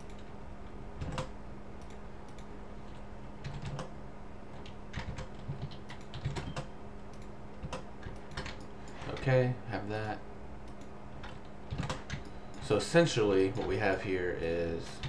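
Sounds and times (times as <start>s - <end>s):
low electrical hum: 0.0s - 15.0s
keyboard typing: 3.4s - 3.9s, 4.6s - 8.7s, 10.6s - 12.6s.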